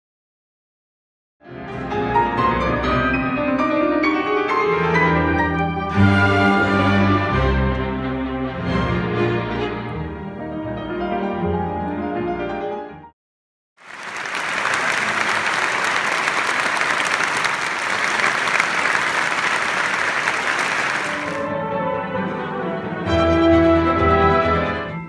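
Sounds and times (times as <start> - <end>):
orchestra and grand piano playing: 1.4 - 13.1, 18.2 - 25.0
audience applauding: 13.8 - 21.5.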